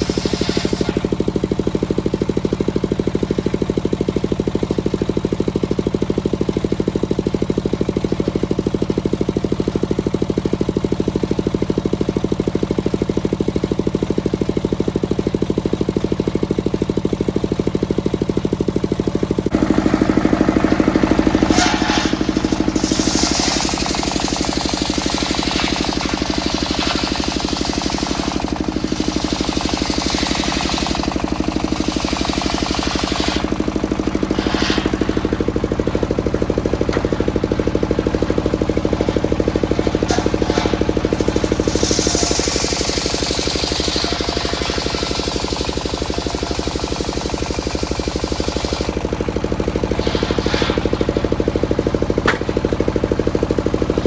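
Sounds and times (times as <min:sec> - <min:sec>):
circular saw scraping: 0:00.0 - 0:01.2, 0:19.6 - 0:37.2, 0:37.9 - 0:49.0, 0:49.6 - 0:52.3
diesel engine thumping: 0:00.0 - 0:54.0.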